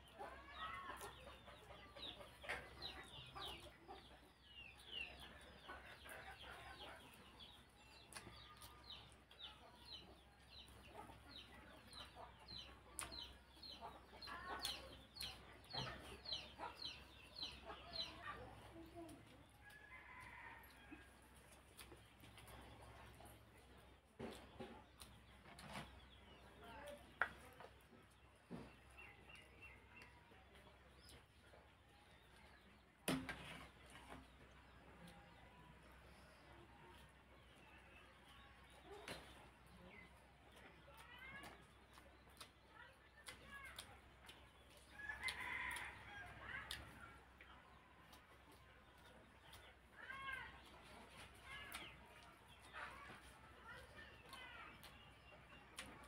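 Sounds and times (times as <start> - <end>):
chickens peeping and clucking: 0.0 - 56.0
faint clicks from eating: 0.2 - 56.0
chewing: 0.3 - 32.6, 33.6 - 56.0.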